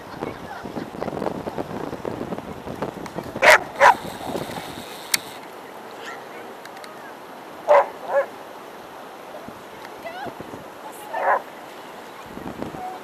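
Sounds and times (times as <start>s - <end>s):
dog barking: 3.4s - 4.0s, 7.7s - 8.3s, 11.2s - 11.4s.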